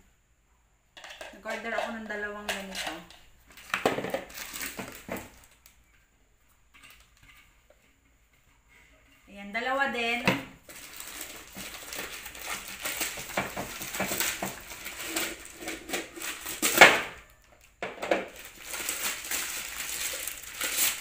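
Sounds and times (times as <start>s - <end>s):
plastic pouch rustling and crinkling: 3.5s - 5.7s, 10.6s - 16.9s, 18.2s - 21.0s
sharp plastic crackle: 3.5s - 5.8s, 10.6s - 21.0s.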